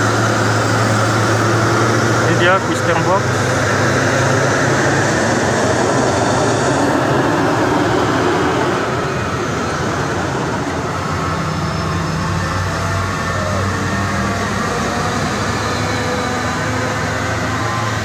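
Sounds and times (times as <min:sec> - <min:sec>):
diesel trucks passing: 0:00.0 - 0:18.0.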